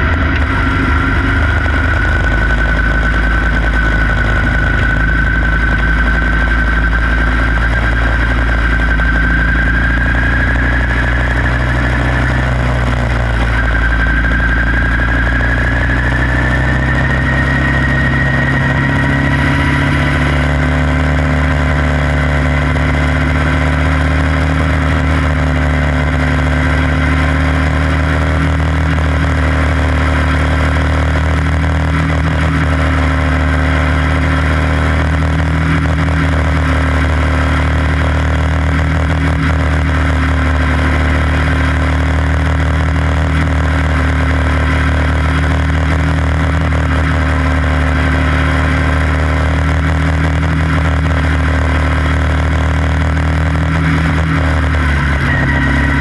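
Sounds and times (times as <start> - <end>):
small race car engine running: 0.0 - 56.0.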